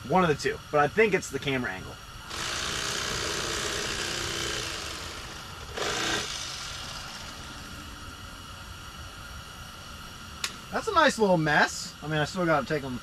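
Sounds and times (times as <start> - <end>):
electric knife buzzing: 2.3 - 8.1.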